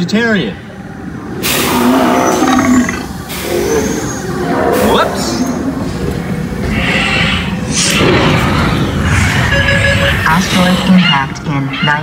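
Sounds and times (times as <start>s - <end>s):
loud hissing rush: 0.6s - 9.3s.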